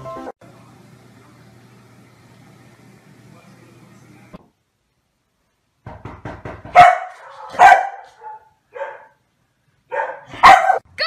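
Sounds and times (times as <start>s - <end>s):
dog barking: 6.7s - 9.2s, 9.9s - 10.9s.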